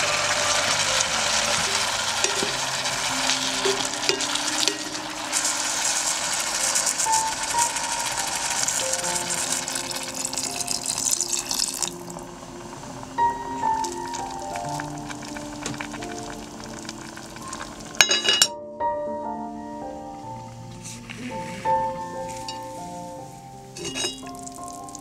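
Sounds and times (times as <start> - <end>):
vegetables sizzling in a pot: 0.0 - 18.5, 20.8 - 25.0
soft background music: 0.0 - 25.0.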